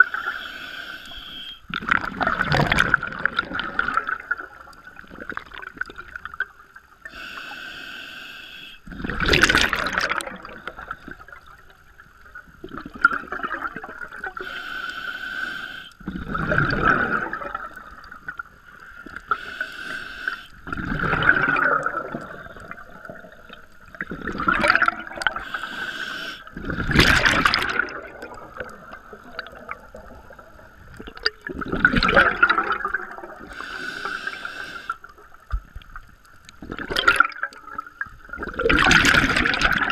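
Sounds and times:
regulator hissing inhale: 0.0 - 1.6, 7.0 - 8.8, 14.4 - 16.0, 18.8 - 20.6, 25.4 - 26.5, 33.4 - 35.1
exhaled bubbles gushing: 1.7 - 6.7, 8.9 - 11.6, 12.6 - 14.4, 16.0 - 18.6, 20.6 - 25.6, 26.4 - 33.6, 36.5 - 39.9.

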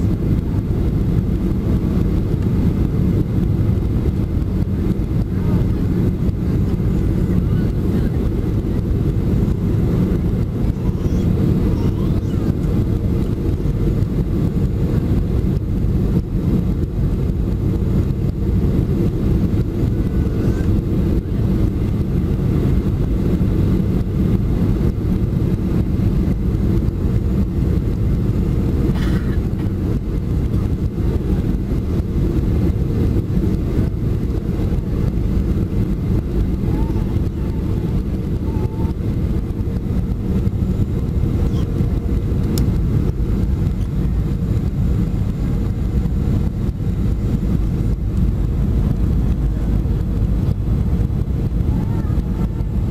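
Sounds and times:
jet engines in cabin: 0.0 - 52.9
air rushing over airframe: 11.3 - 52.9.

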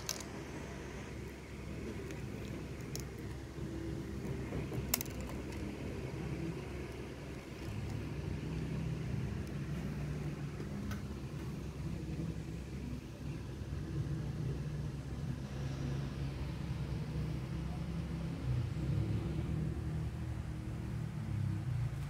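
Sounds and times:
low mechanical hum: 0.0 - 22.0.

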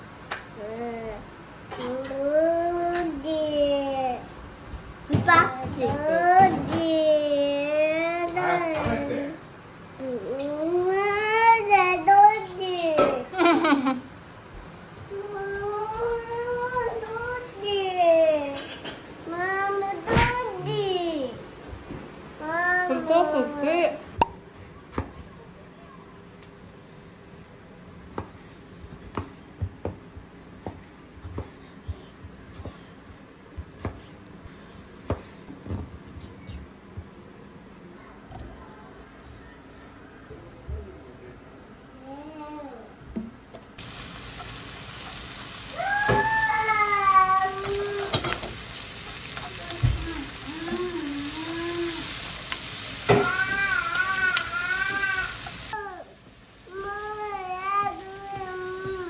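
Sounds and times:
knife chopping on wooden board: 33.6 - 34.1, 34.9 - 35.4
food sizzling in a frying pan: 43.8 - 59.0
small child crying: 45.7 - 48.3, 49.5 - 52.2, 53.0 - 56.1, 56.7 - 59.0.

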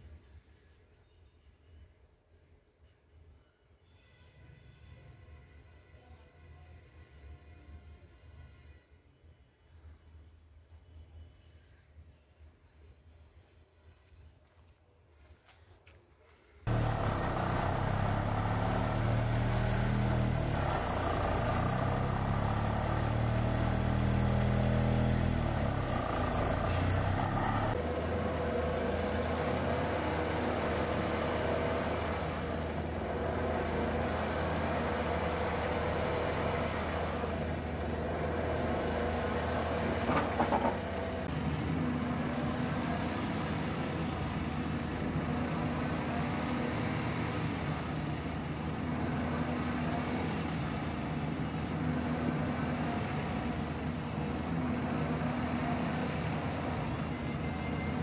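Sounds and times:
vibratory pile hammer drone: 16.7 - 48.6
excavator engine: 16.7 - 58.0
rattle of knocks: 39.9 - 40.9.

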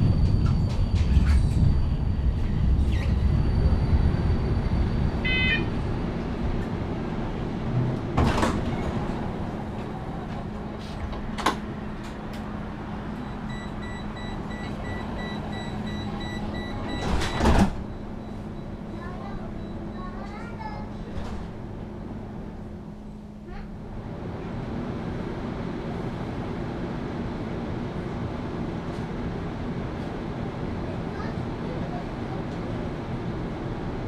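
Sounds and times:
tram humming: 0.0 - 34.0
tram running rumble: 0.0 - 34.0
sliding doors clattering: 7.7 - 12.6, 16.8 - 17.9
signal beeping: 13.2 - 20.0.

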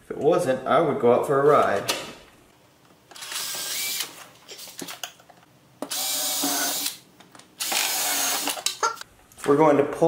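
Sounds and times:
cordless drill whining: 3.2 - 4.1, 5.9 - 7.0, 7.6 - 8.6.

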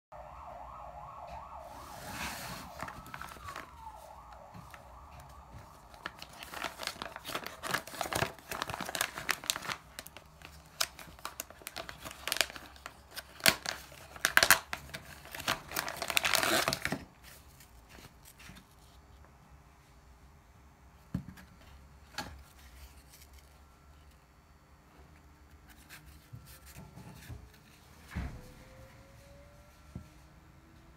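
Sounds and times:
plastic bag crinkling and tearing: 2.3 - 4.1, 5.2 - 18.4.

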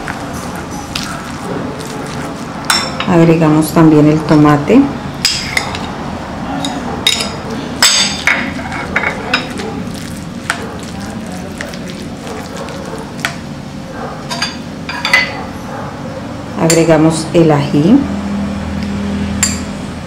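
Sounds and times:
soft wet mixing: 0.0 - 4.4, 6.8 - 14.2
fork clinking against bowl: 6.6 - 10.9.

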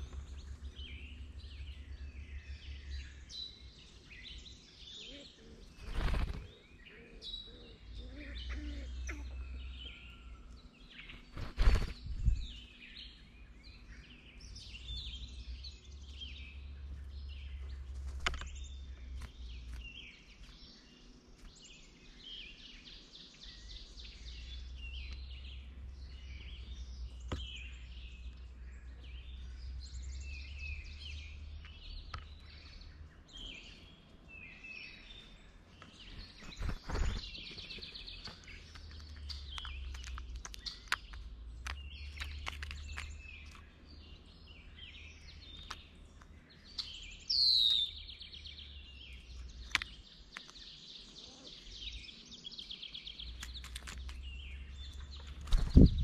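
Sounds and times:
small birds chirping: 0.0 - 56.0
sharp clicks: 38.2 - 43.7.

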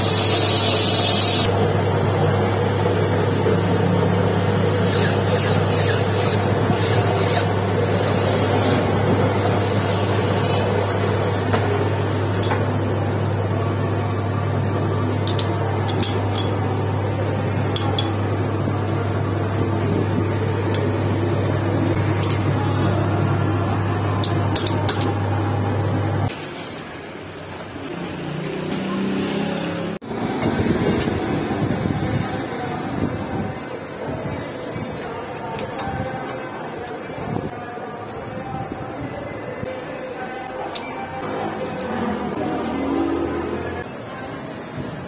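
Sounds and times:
metal lathe humming: 4.4 - 11.3
cutting tool rasping metal: 4.7 - 10.5.

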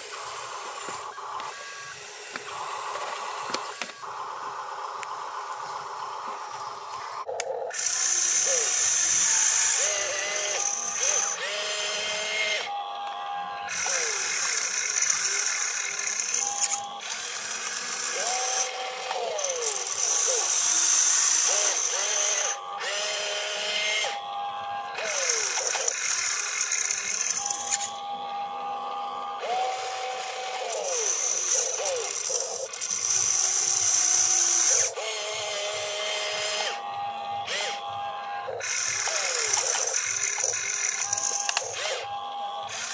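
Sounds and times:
electric motors whining: 0.0 - 42.9.

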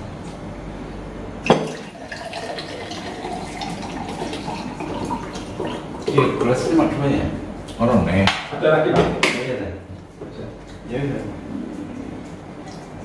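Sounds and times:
water pouring into a glass: 1.6 - 6.4.

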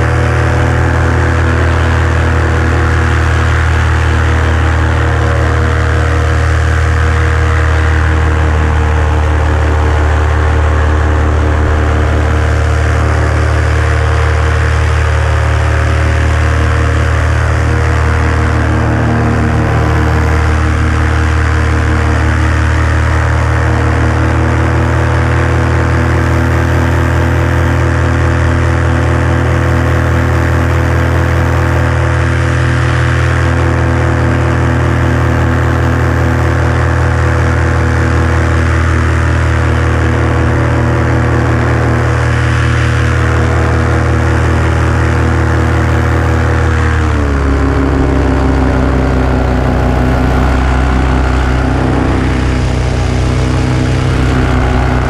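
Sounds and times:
small aircraft engine running: 0.0 - 55.0
rushing air: 1.0 - 23.4, 46.2 - 55.0.

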